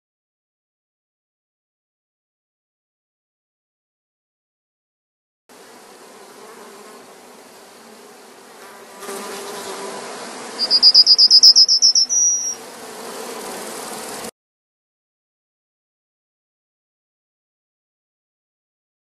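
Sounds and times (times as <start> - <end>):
insect pulsed trill: 10.6 - 12.6.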